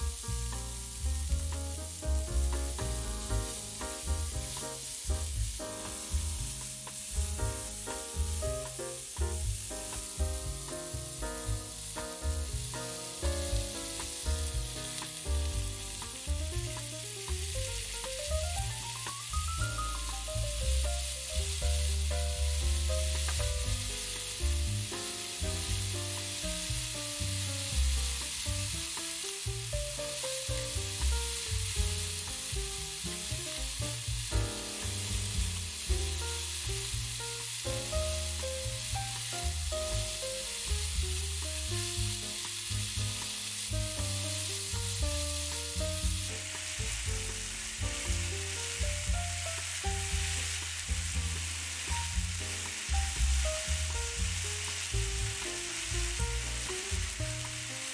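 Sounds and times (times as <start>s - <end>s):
vegetables sizzling in a pan: 0.0s - 57.9s.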